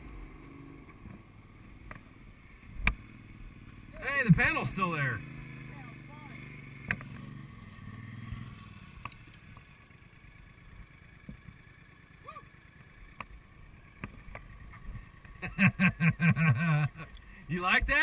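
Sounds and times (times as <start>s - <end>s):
small clicks: 9.0s - 9.7s
person laughing: 15.4s - 17.1s.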